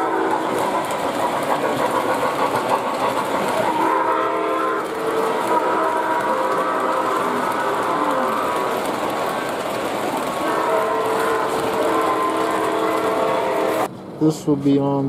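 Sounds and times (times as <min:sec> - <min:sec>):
model train wheels rattling: 0:00.0 - 0:13.9
model steam whistle chord: 0:03.8 - 0:08.5, 0:10.4 - 0:13.9.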